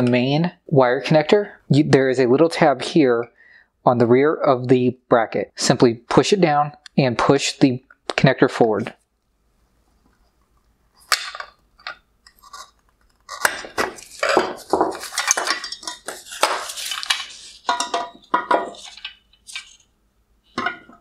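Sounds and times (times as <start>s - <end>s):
plastic and metal parts clattering: 11.0s - 19.9s.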